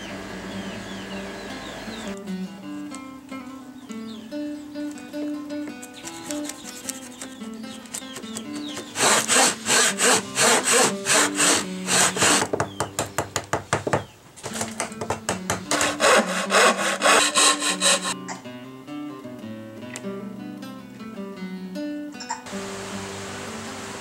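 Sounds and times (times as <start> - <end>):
background guitar music: 0.0 - 13.2, 14.5 - 24.0
hand saw cutting wood: 8.9 - 12.5, 15.7 - 18.2.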